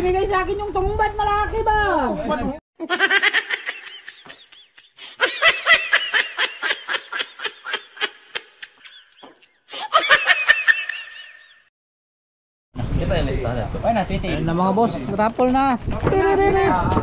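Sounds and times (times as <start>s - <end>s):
high-pitched laughter: 2.8s - 11.7s.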